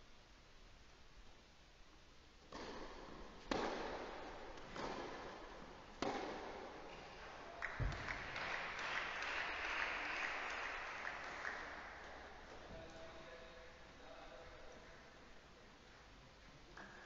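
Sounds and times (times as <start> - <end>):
racket hitting tennis ball: 2.5 - 7.1
scattered applause: 7.5 - 12.2.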